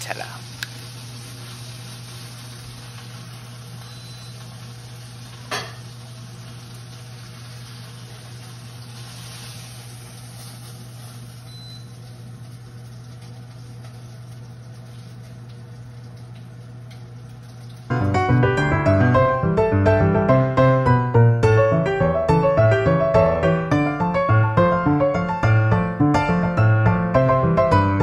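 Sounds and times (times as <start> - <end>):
beef sizzling in a pot: 0.0 - 15.4.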